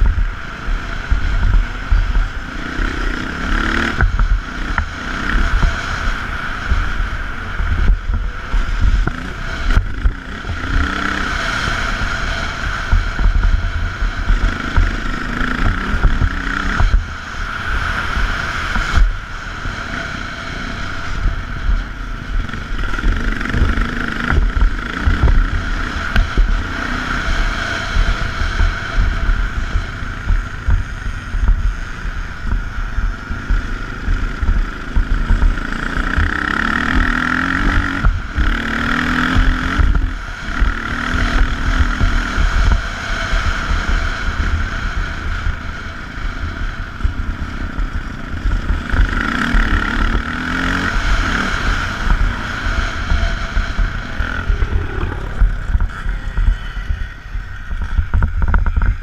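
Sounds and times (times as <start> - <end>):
motorbike engine revving: 0.0 - 59.0
wind buffeting microphone: 0.0 - 59.0.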